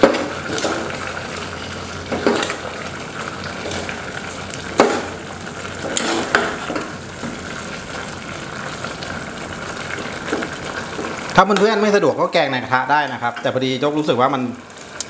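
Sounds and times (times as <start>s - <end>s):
curry sizzling in pot: 0.0s - 15.0s
ladle scraping and knocking pot: 4.7s - 5.2s, 5.8s - 7.4s.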